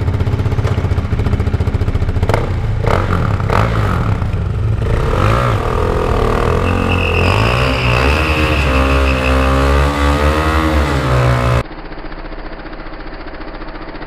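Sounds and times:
motorcycle engine at high revs: 0:00.0 - 0:14.0
tyre squeal: 0:05.9 - 0:11.1.

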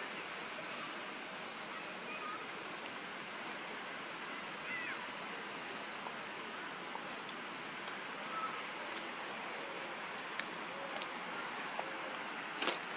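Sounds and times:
high pulsing insect tone: 0:00.0 - 0:12.9
insects hissing: 0:00.0 - 0:12.9
faint clicks and chirps: 0:07.0 - 0:07.5.

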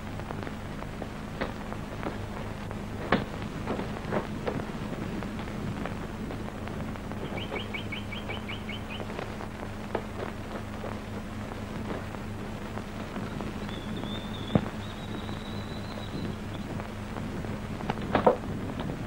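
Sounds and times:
low hum: 0:00.0 - 0:19.0
animal high chirps: 0:07.2 - 0:09.1.

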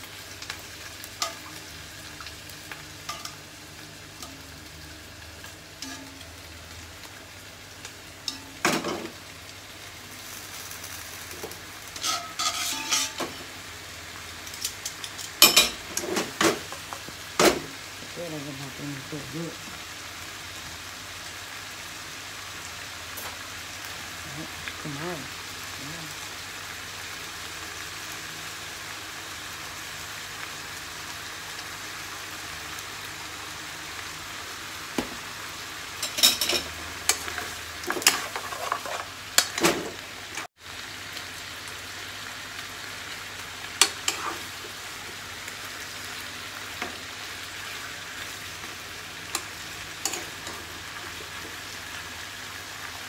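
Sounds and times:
spareribs sizzling in a frying pan: 0:00.0 - 0:53.0
metal utensil scraping a pan: 0:05.8 - 0:06.3, 0:11.9 - 0:13.4, 0:36.0 - 0:39.8, 0:43.8 - 0:44.5.

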